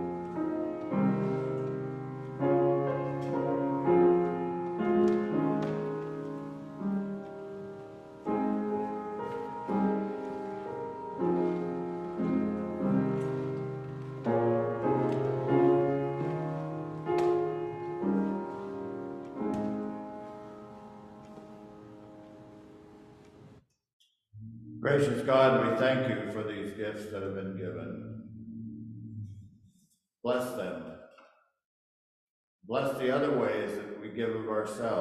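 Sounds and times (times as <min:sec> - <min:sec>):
solo piano chords: 0:00.0 - 0:23.6.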